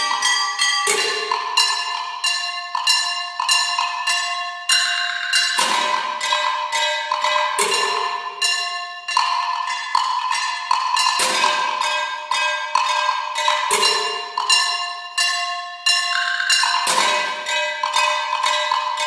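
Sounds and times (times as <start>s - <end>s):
ringing metal percussion strikes: 0.0s - 19.0s.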